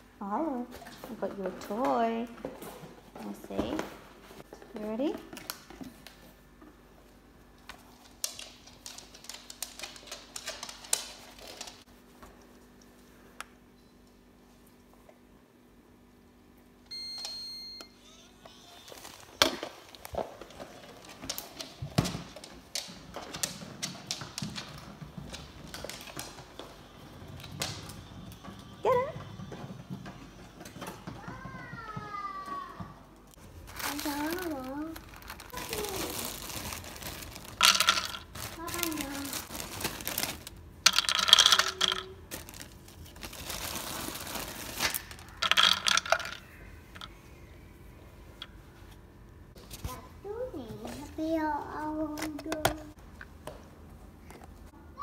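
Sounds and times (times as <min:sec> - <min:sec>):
dog claws on wooden floor: 0:19.9 - 0:28.5
plastic ball knocking and rolling: 0:37.5 - 0:38.4, 0:40.8 - 0:42.2, 0:45.1 - 0:47.1.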